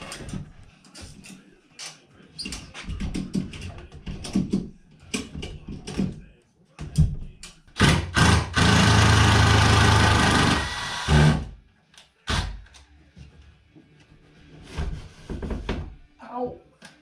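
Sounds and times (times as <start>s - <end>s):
impact driver driving fastener: 7.8s - 11.4s.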